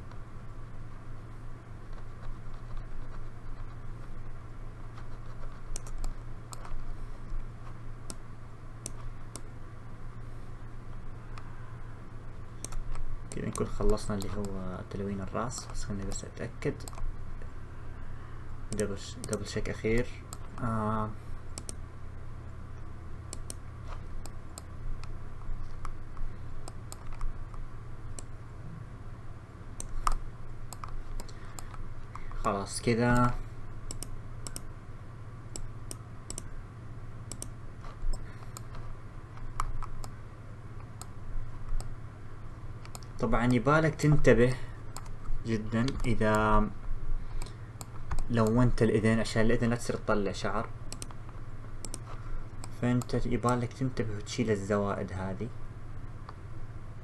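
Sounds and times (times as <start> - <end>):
steady low hum: 0.0 - 57.0
keyboard and mouse clicks: 4.9 - 7.4, 8.8 - 9.5, 12.6 - 14.6, 15.4 - 16.2, 16.8 - 17.1, 18.7 - 20.7, 21.5 - 21.8, 23.3 - 23.6, 24.2 - 28.3, 29.8 - 32.5, 33.1 - 34.7, 35.5 - 36.5, 37.3 - 40.2, 42.8 - 43.6, 45.0 - 45.2, 45.8 - 46.5, 47.4 - 48.6, 50.9 - 51.2, 51.8 - 53.6.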